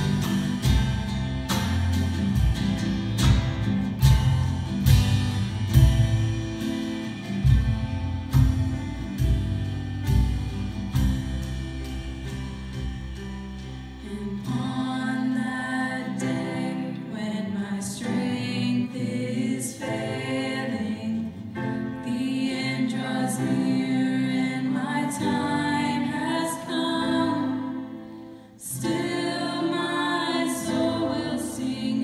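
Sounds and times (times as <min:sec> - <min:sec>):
drum kit beat: 0:00.0 - 0:14.7
live band playing: 0:00.0 - 0:16.7
people singing: 0:14.0 - 0:32.0.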